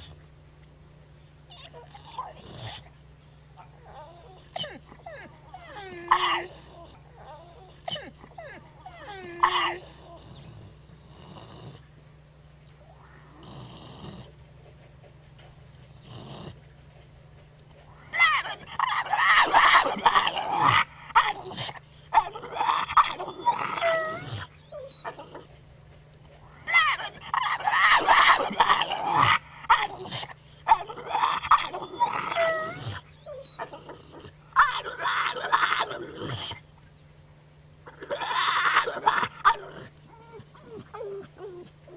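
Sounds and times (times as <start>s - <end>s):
dog snorting: 1.5s - 3.0s, 3.6s - 11.9s, 13.3s - 21.8s.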